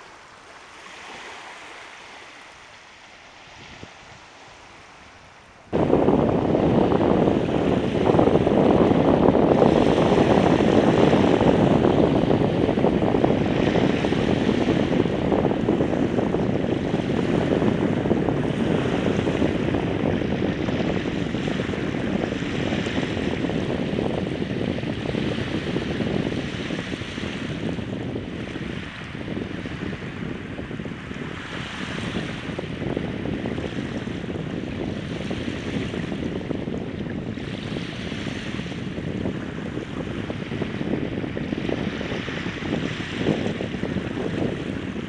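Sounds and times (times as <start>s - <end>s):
small surf washing onto sand: 0.0s - 23.6s
wind buffeting microphone: 3.1s - 45.0s.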